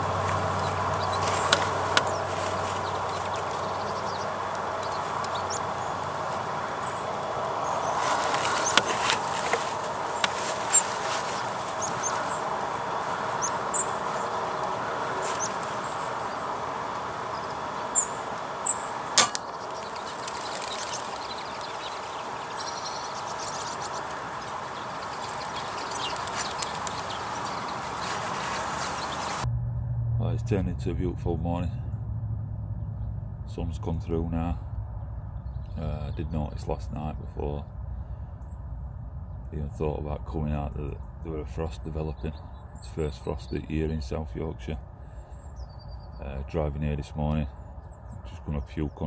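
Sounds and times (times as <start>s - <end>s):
bird chirps: 0.0s - 29.4s, 32.7s - 49.0s
background rushing noise: 0.0s - 48.7s
sharp crack: 17.9s - 22.7s.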